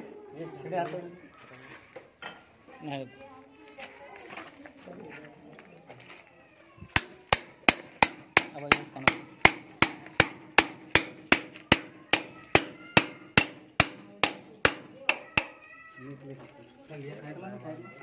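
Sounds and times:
hammer striking concrete block: 7.0s - 15.6s.

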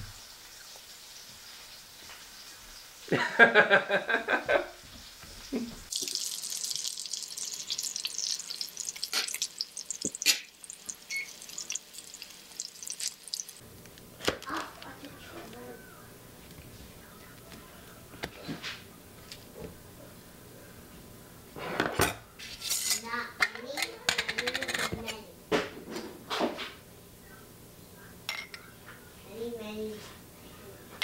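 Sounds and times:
sausages sizzling in a frying pan: 0.0s - 13.7s
young child's voice: 14.4s - 16.1s, 23.0s - 25.4s, 29.2s - 31.0s.

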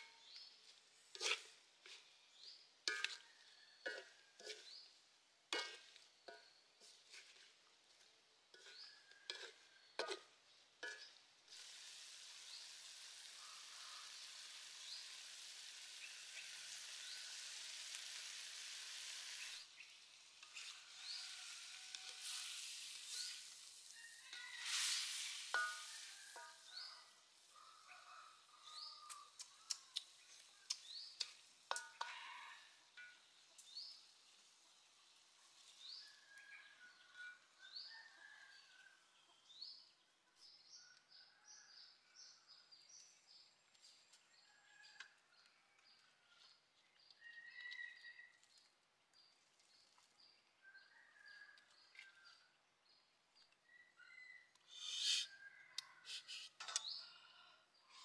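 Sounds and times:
food sizzling in a wok: 0.0s - 38.2s, 54.7s - 55.4s
metal spatula scraping a wok: 1.1s - 3.2s, 3.8s - 4.9s, 5.5s - 12.6s, 20.4s - 23.7s, 24.3s - 27.0s, 54.7s - 55.2s.

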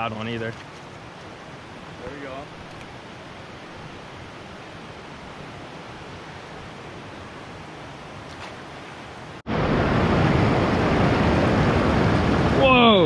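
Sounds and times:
river rushing over rocks: 0.6s - 13.0s
wind on microphone: 9.5s - 13.0s.

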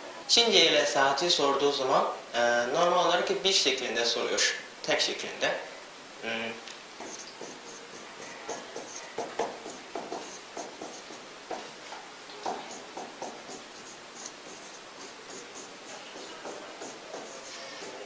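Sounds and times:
marker pen writing on whiteboard: 7.0s - 18.0s.

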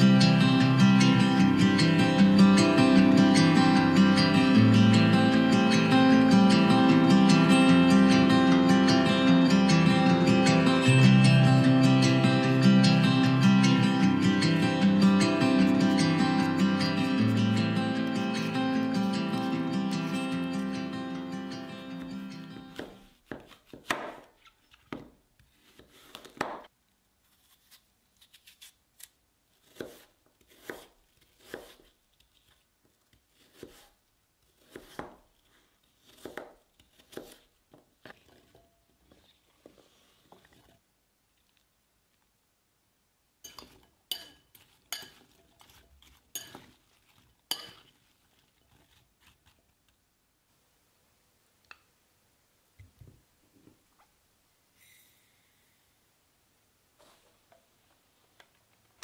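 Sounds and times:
knife cutting apple on board: 22.5s - 26.7s, 27.4s - 40.7s, 43.5s - 47.9s
fork clinking against glass bowl: 43.4s - 45.7s, 46.3s - 46.8s, 47.5s - 47.9s.

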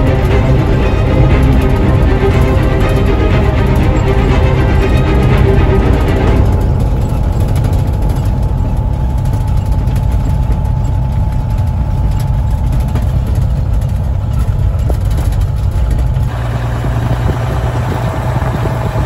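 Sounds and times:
truck diesel engine droning: 0.0s - 19.0s.

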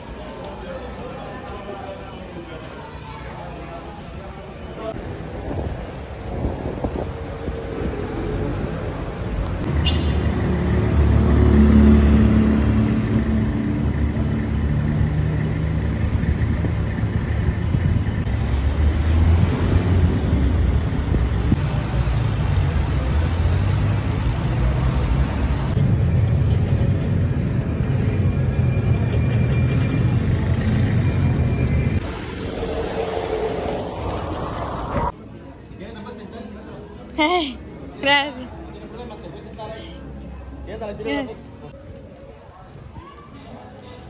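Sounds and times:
car engines passing: 4.9s - 35.2s.

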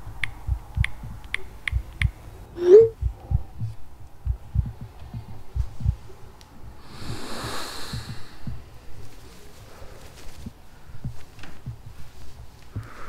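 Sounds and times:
soft low thumps: 0.0s - 13.0s
short rising tone: 2.6s - 3.0s
scarf rustling: 8.7s - 12.8s.

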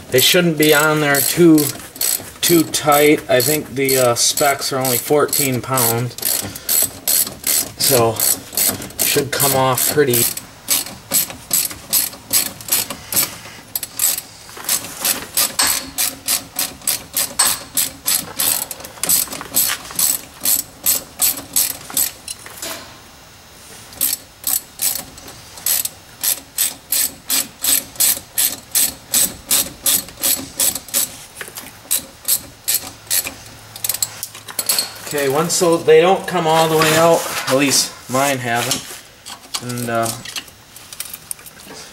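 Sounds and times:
ratchet wrench clicking: 0.2s - 22.4s, 24.0s - 31.2s, 31.9s - 34.9s.

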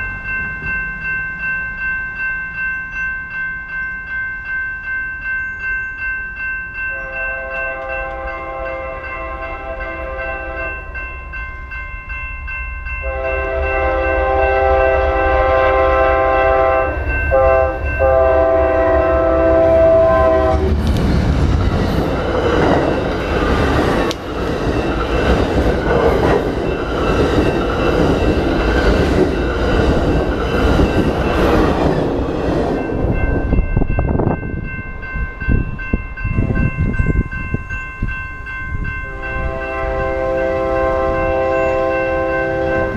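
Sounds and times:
train cars rushing and clattering: 0.0s - 4.2s, 4.8s - 42.9s
crossing bells ringing: 0.0s - 20.8s, 21.4s - 42.9s
train horn blasts: 6.9s - 10.9s, 13.0s - 20.7s, 39.0s - 42.9s.

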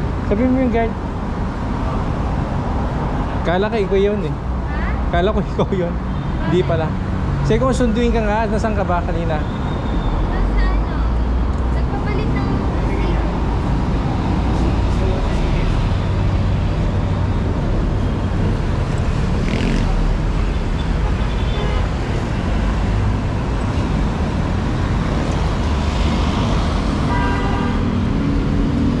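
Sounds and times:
rumble of passing traffic: 0.0s - 29.0s
vehicle horn: 20.8s - 22.1s, 27.1s - 27.9s.

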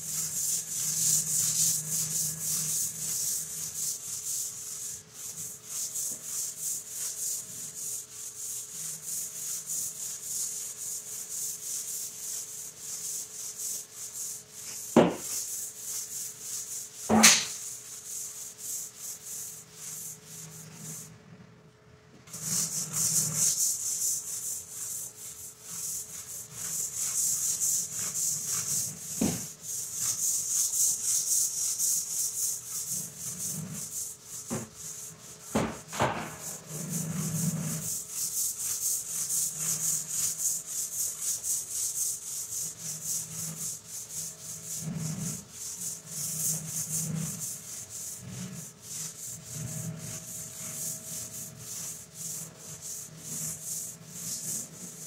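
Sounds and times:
brush scrubbing wet tile floor: 0.0s - 21.1s, 22.3s - 55.0s
sharp knocks: 15.0s - 15.2s, 17.1s - 17.6s.

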